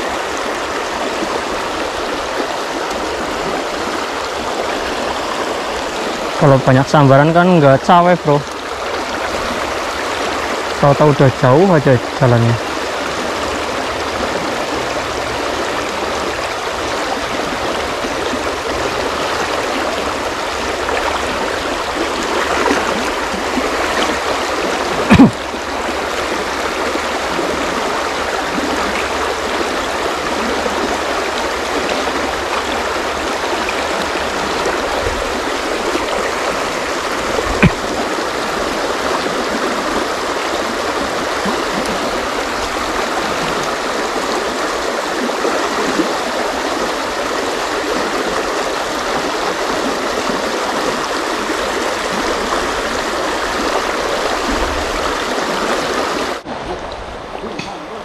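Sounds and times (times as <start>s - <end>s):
river rushing over stones: 0.0s - 58.0s.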